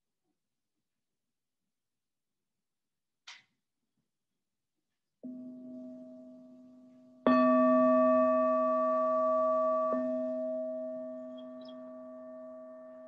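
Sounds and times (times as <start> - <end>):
singing bowl ringing: 5.3 - 13.0.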